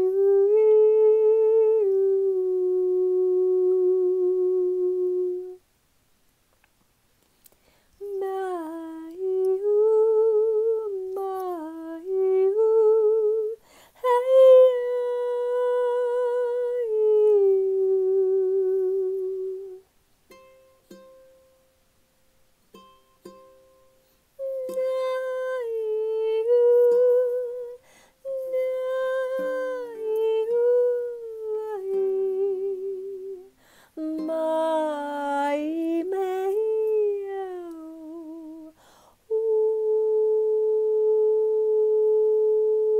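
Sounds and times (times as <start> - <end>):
ukulele plucked softly: 14.2 - 21.7, 22.7 - 38.7.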